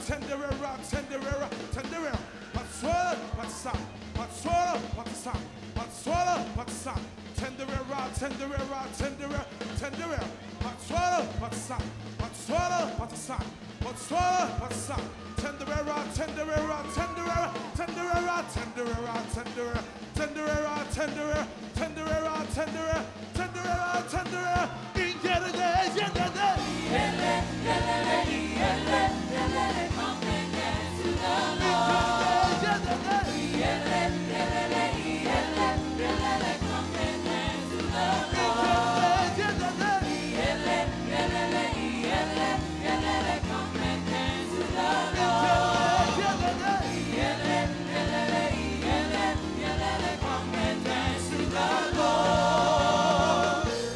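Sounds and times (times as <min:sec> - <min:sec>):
band with bass and beat: 0:00.0 - 0:53.9
worship team singing: 0:24.2 - 0:53.9
congregation singing: 0:25.1 - 0:53.9.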